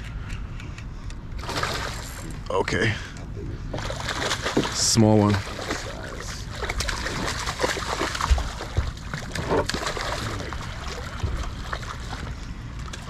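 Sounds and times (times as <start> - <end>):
low steady rumble: 0.0 - 13.0
fish splashing at surface: 1.4 - 2.2, 3.8 - 12.2.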